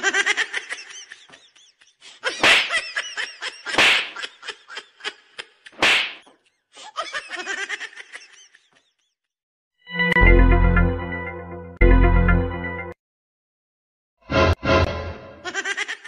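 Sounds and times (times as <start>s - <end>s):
high-pitched laughter: 0.0s - 5.8s, 6.8s - 9.1s, 15.4s - 16.0s
sharp slaps: 2.4s - 2.8s, 3.7s - 4.2s, 5.8s - 6.3s.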